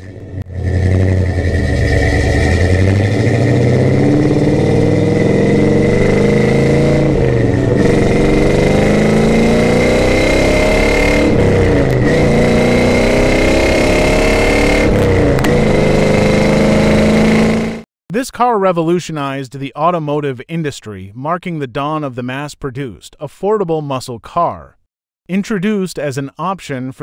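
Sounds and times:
car engine accelerating hard: 0.0 - 17.9.

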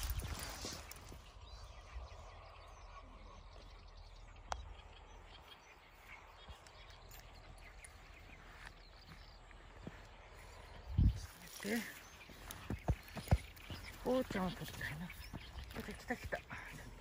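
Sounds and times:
distant bird calls: 0.0 - 17.0.

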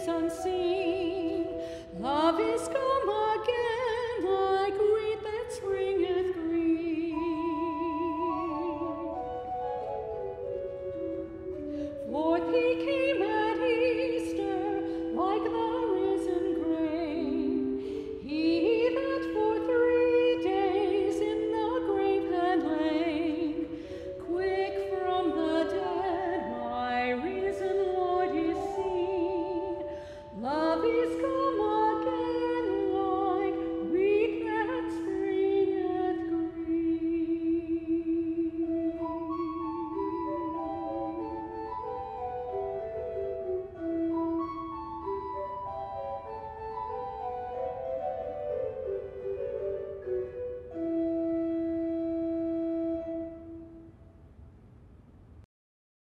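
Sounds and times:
woman singing operatically: 0.0 - 10.4, 11.9 - 42.7.

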